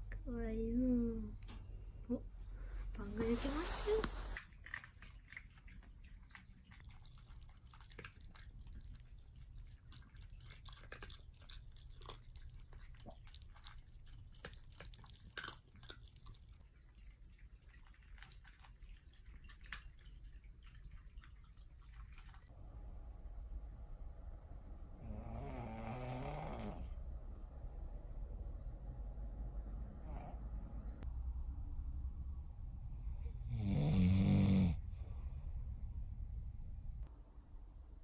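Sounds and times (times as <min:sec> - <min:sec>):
faint crunching of pets chewing kibble: 0:03.2 - 0:22.5.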